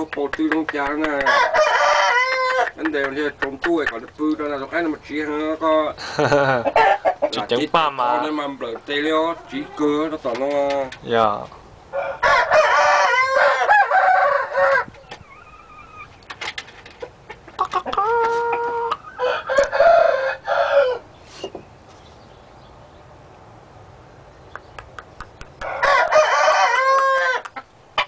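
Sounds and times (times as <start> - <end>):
rooster crowing: 1.3 - 2.7, 11.9 - 16.1, 18.1 - 21.1, 25.6 - 27.5.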